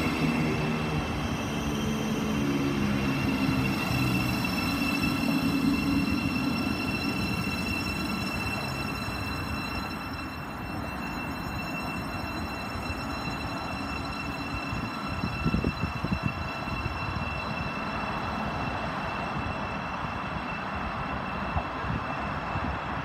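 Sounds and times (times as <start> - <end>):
electric train whine and rumble: 0.0 - 23.0.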